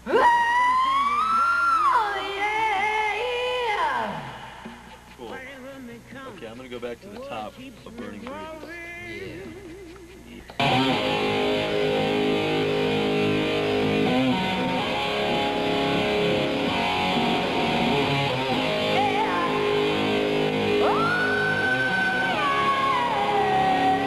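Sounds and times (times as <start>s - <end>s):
rock band with electric guitars: 10.6s - 24.0s.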